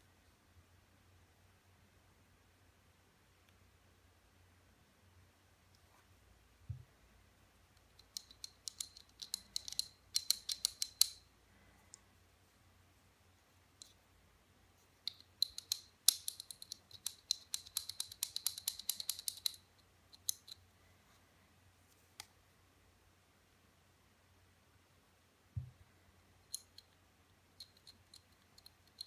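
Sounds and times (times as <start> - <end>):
pistol parts clicking and scraping: 8.0 - 11.2, 15.0 - 20.6.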